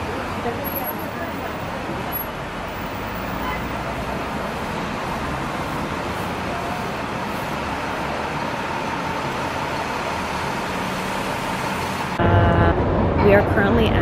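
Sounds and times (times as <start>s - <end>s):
city traffic roar: 0.0s - 14.0s.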